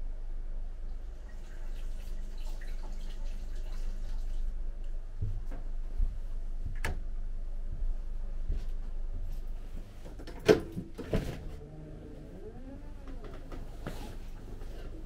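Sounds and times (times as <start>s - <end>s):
water dripping and splashing in sink: 1.3s - 4.5s.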